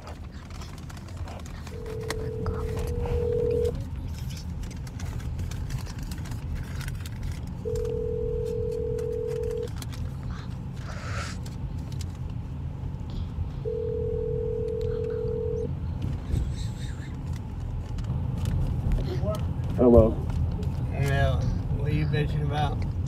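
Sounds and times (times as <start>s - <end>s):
car cabin rumble: 0.0s - 23.0s
telephone ringback tone: 1.8s - 3.7s, 7.6s - 9.7s, 13.7s - 15.7s.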